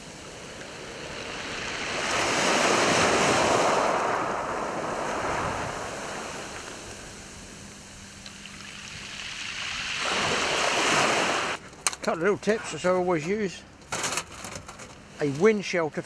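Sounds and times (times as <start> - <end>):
waves washing over shingle: 0.0 - 7.3, 8.6 - 11.6.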